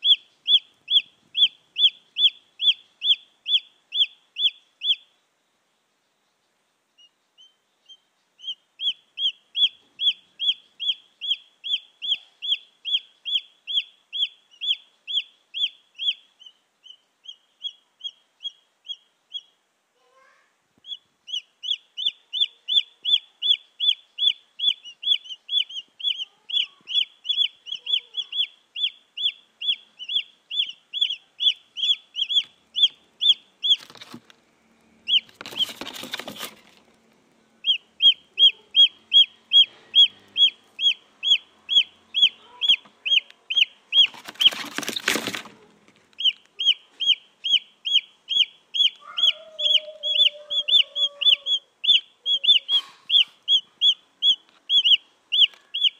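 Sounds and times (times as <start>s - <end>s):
chicks peeping: 0.0s - 5.1s, 7.0s - 19.6s, 20.8s - 55.9s.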